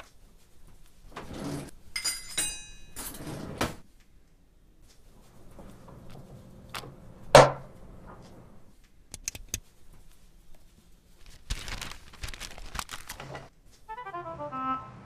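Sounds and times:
rustling: 0:09.6 - 0:13.9.

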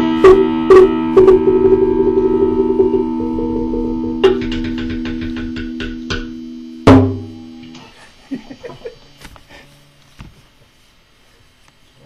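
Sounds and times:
log drum low boom: 0:00.0 - 0:07.4
guitar chord ringing: 0:00.0 - 0:07.8.

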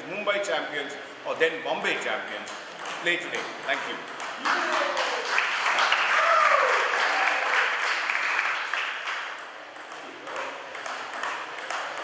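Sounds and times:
audience applauding: 0:04.4 - 0:09.4.

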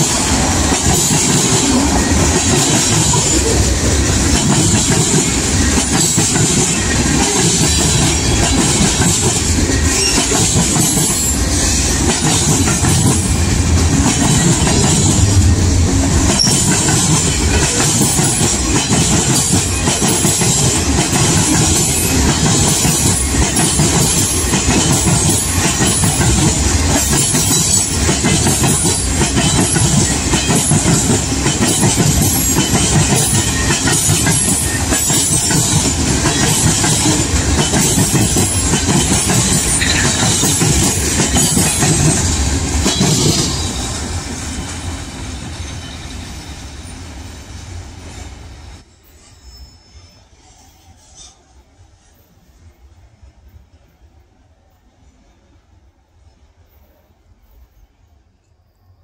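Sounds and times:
train wheels clattering on rails: 0:00.0 - 0:47.0.

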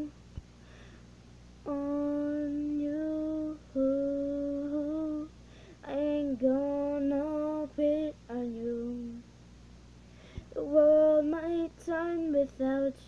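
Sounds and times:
girl singing wordless notes: 0:00.0 - 0:00.2, 0:01.6 - 0:09.3, 0:10.2 - 0:13.0
girl breathing: 0:00.6 - 0:01.1, 0:05.4 - 0:05.8, 0:10.1 - 0:10.6.

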